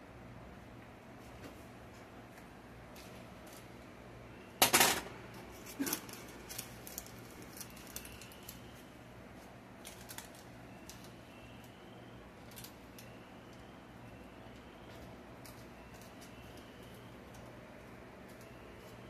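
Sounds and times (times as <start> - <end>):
kitchenware clattering: 4.6 - 5.1.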